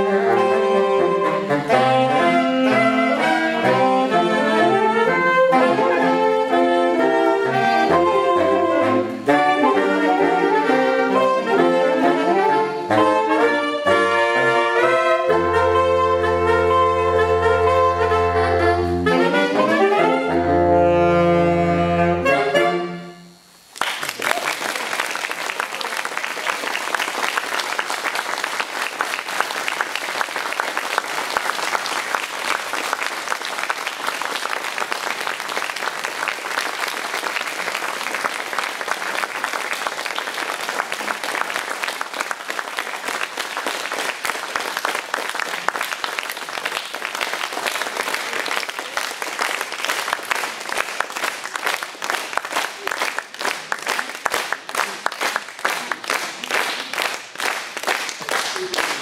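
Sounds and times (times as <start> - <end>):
audience applauding: 23.7 - 59.0.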